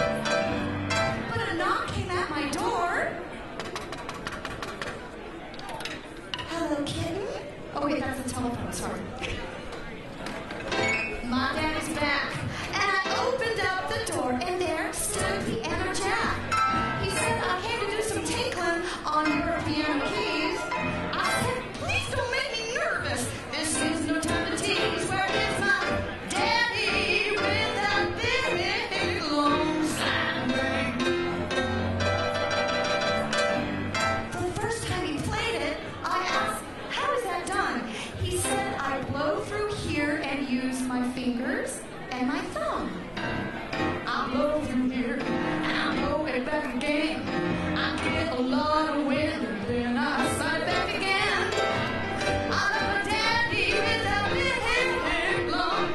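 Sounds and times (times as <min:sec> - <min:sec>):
grand piano: 0:00.0 - 0:02.0, 0:10.6 - 0:22.2, 0:23.0 - 0:35.4, 0:43.2 - 0:55.9
woman singing with vibrato: 0:11.2 - 0:31.3, 0:34.3 - 0:42.8, 0:44.0 - 0:55.9.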